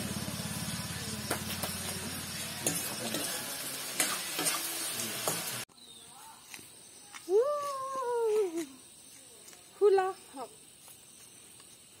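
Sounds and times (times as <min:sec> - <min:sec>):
food sizzling in a wok: 0:00.0 - 0:05.7.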